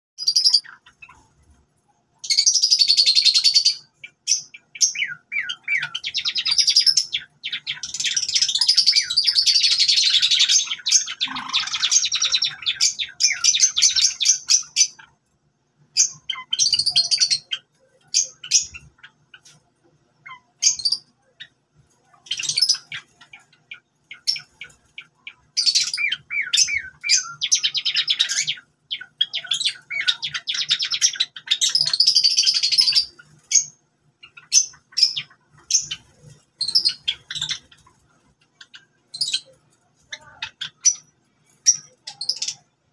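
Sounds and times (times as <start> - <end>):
sparrows chirping: 0.2 - 42.9.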